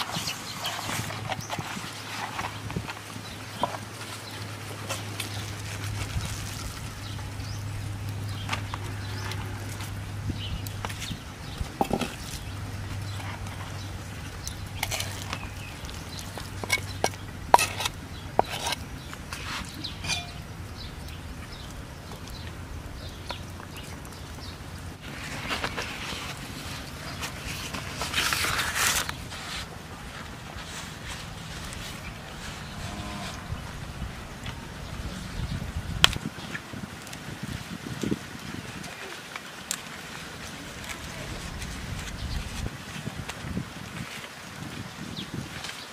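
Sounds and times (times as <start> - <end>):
banana leaf rustling: 0.0 - 45.9
knife scraping a mortar: 16.4 - 20.4.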